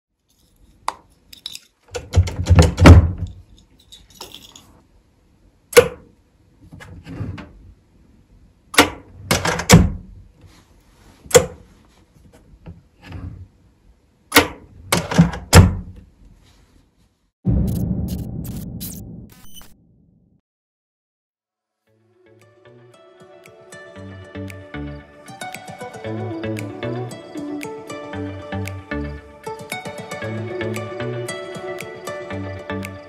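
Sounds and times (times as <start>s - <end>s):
drawer latch clicks and knocks: 1.9s - 3.3s, 8.8s - 10.0s.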